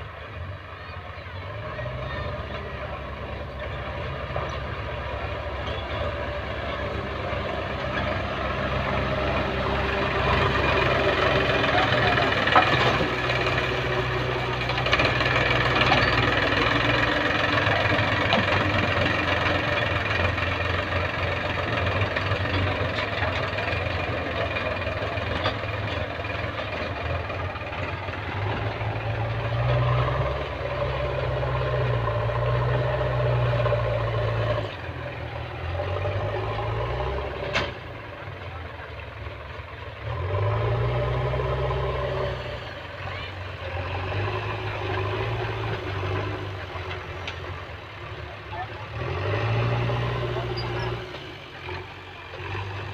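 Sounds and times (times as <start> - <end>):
tractor engine running under load: 0.0 - 52.9.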